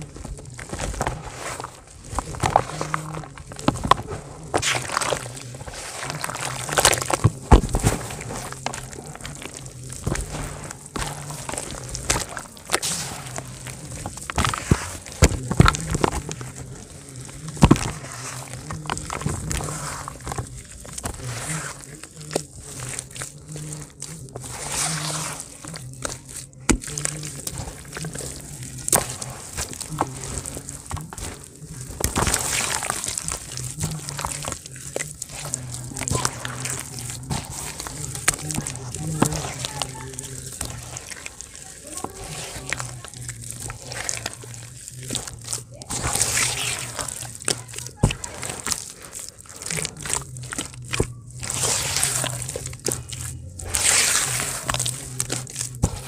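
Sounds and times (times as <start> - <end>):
dry dirt crumbling: 0.0 - 56.0
wet mud squelching: 0.0 - 56.0.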